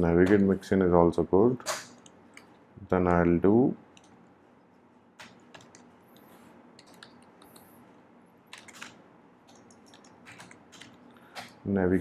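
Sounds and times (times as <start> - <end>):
keyboard typing clicks: 3.9 - 4.2, 5.2 - 7.7, 8.5 - 11.6.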